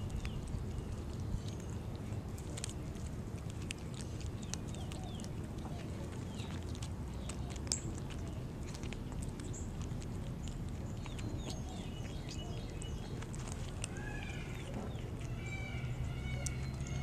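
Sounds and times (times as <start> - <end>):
kittens crunching dry kibble: 0.0 - 17.0.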